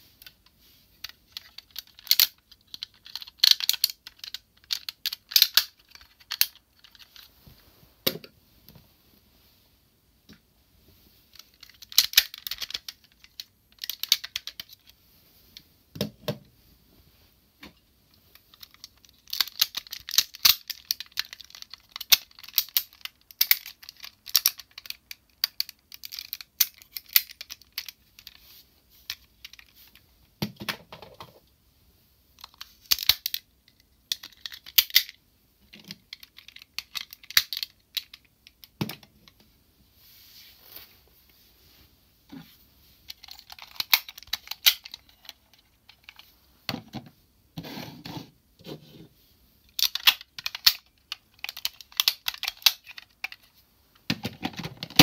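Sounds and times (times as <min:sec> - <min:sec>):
plastic toy parts clicking: 0:01.0 - 0:07.3, 0:11.3 - 0:14.9, 0:18.4 - 0:28.4, 0:32.4 - 0:39.1, 0:43.1 - 0:46.2, 0:49.7 - 0:53.5.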